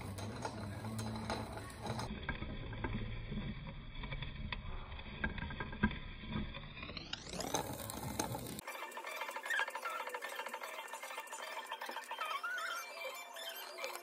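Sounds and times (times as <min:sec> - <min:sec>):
filer scraping metal ring: 0:00.0 - 0:02.1.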